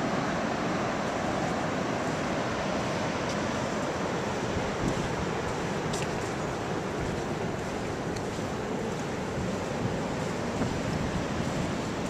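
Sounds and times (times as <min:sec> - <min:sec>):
ocean surf: 0:00.0 - 0:12.0
wind buffeting microphone: 0:02.6 - 0:12.0.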